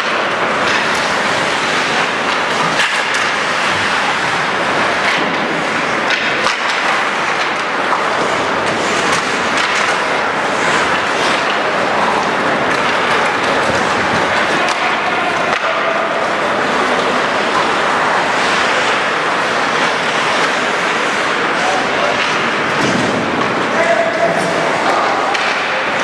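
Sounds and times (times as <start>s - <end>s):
hockey sticks and puck clacking: 0.0s - 26.0s
noisy background: 0.0s - 26.0s
skates scraping ice: 0.0s - 26.0s.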